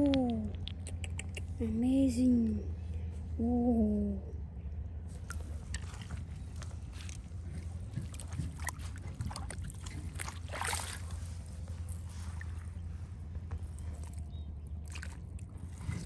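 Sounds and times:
low rumble: 0.0s - 16.0s
water sloshing and splashing: 5.1s - 16.0s.

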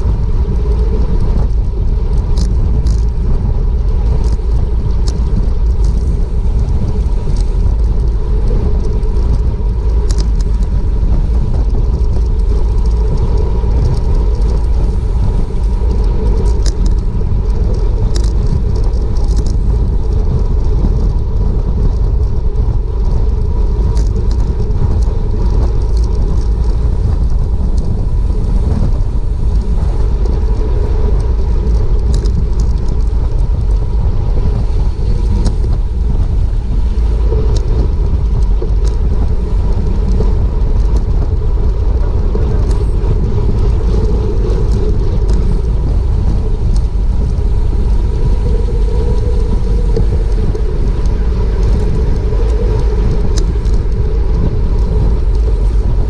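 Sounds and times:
wind rumble on microphone: 0.0s - 56.0s
faint clicks: 15.6s - 20.3s.

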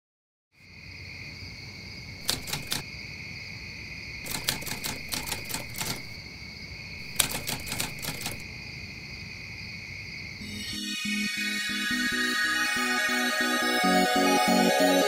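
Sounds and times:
typewriter keystrokes clicking: 2.2s - 2.8s, 4.2s - 6.2s, 7.0s - 8.4s
high-pitched hum: 10.4s - 15.0s.

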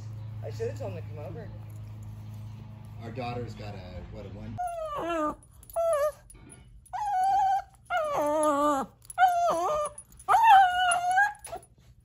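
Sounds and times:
puppy whining: 4.6s - 12.0s.

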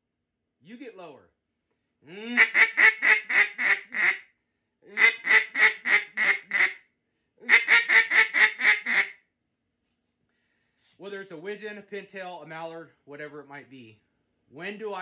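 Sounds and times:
duck call quacks: 2.1s - 4.3s, 4.9s - 6.8s, 7.4s - 9.2s.

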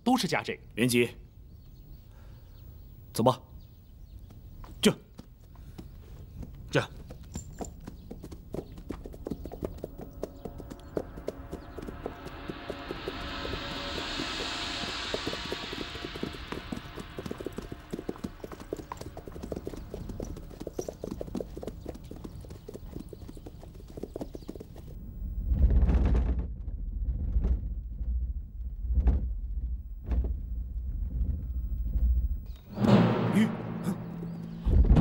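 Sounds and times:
horses hooves clip-clopping: 4.2s - 14.1s, 15.1s - 25.0s
deep low rumbling: 9.4s - 20.4s, 24.9s - 35.0s.

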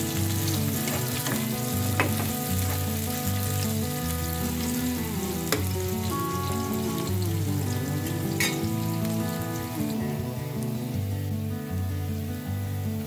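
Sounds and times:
onions sizzling in oil: 0.0s - 13.0s.

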